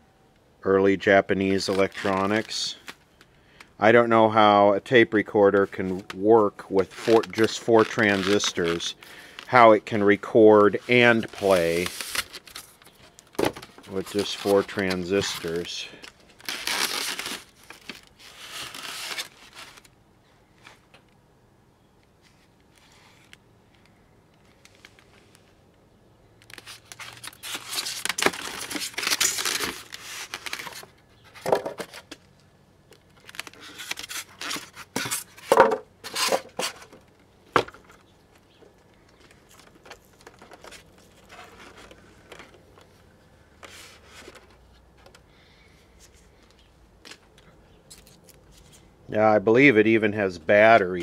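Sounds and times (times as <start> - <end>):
rubbing and scraping styrofoam: 26.6 - 31.4.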